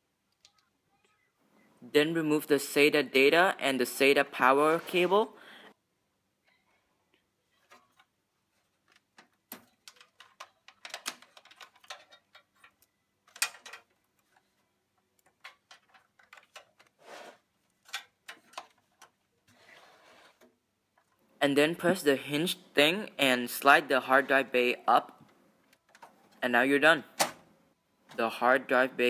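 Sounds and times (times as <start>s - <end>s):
rustling scrape: 4.5s - 5.3s, 17.0s - 17.5s, 19.5s - 20.5s
cable connectors clicking: 8.8s - 14.0s.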